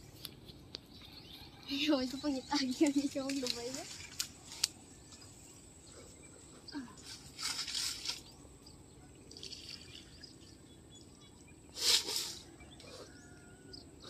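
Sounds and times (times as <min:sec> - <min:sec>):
water splashing and pouring: 0:09.3 - 0:10.5.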